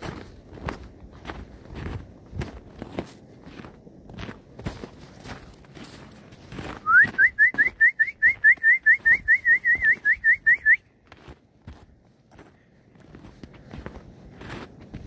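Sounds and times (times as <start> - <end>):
person whistling rising notes: 6.8 - 10.8.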